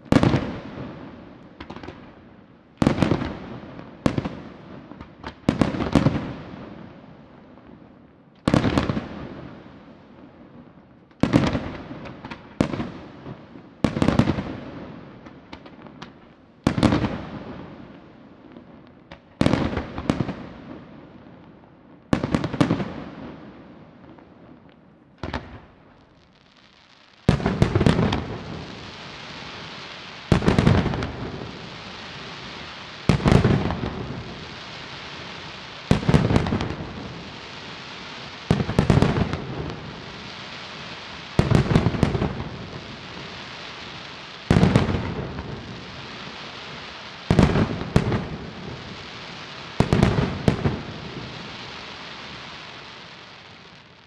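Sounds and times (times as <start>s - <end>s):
steady hiss: 26.2s - 53.8s.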